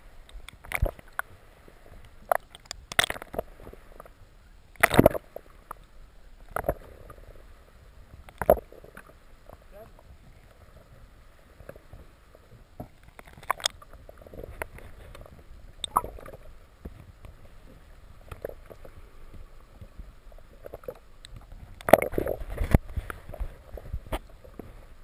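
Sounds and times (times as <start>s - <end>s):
underwater gurgling rumble: 0.0s - 25.0s
water sloshing: 11.5s - 24.8s.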